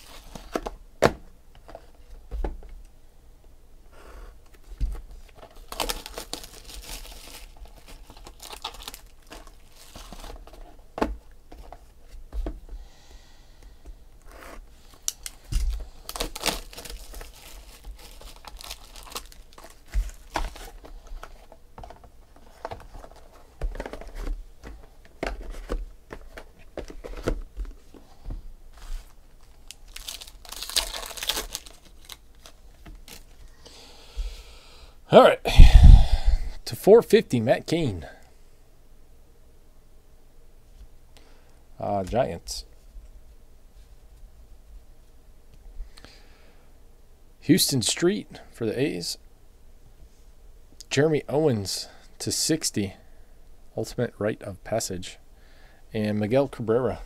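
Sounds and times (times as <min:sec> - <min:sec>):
foil wrappers crinkling and tearing: 0:05.2 - 0:10.7, 0:14.8 - 0:21.6, 0:28.8 - 0:33.6.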